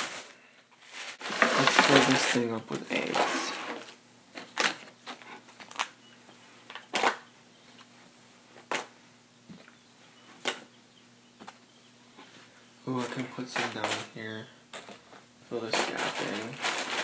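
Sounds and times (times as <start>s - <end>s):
plastic and packaging crinkling: 0.0s - 6.0s, 6.6s - 7.3s, 13.0s - 17.0s.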